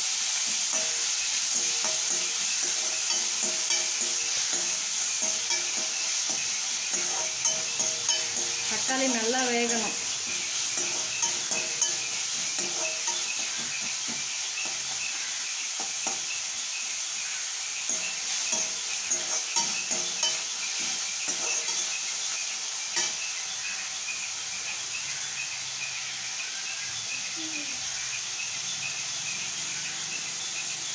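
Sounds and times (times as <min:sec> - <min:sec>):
vegetables sizzling in oil: 0:00.0 - 0:30.9
metal spatula scraping pan: 0:00.7 - 0:13.9, 0:17.9 - 0:22.2.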